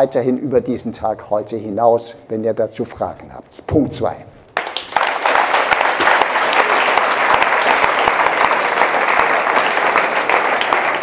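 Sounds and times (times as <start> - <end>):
audience applause: 4.6 - 11.0.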